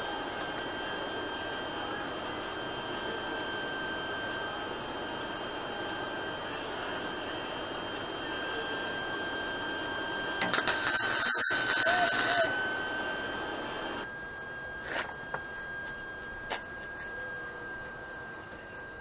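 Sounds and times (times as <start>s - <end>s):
welding arc crackling: 10.4s - 12.5s.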